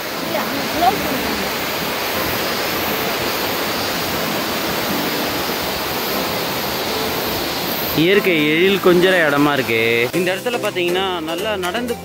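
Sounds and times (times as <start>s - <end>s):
river rushing over rapids: 0.0s - 12.0s.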